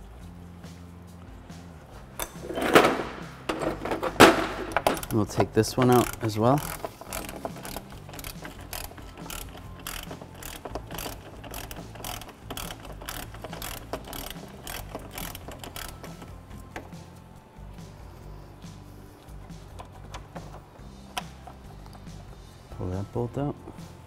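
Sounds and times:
ratchet wrench clicking: 0:04.7 - 0:17.0.

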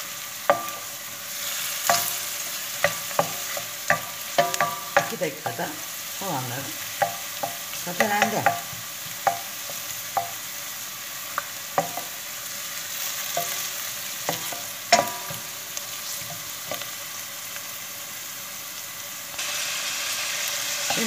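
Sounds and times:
onions sizzling in oil: 0:00.0 - 0:21.0
wooden spoon knocking on pot: 0:02.8 - 0:05.8, 0:07.0 - 0:10.4, 0:11.7 - 0:12.2, 0:14.2 - 0:15.5.

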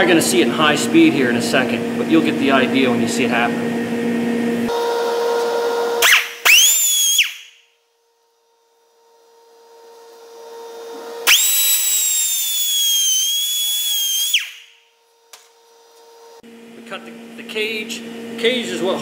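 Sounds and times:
pneumatic cutoff tool whining: 0:04.7 - 0:07.6, 0:10.0 - 0:16.1
wheel cutting metal: 0:10.8 - 0:14.5.

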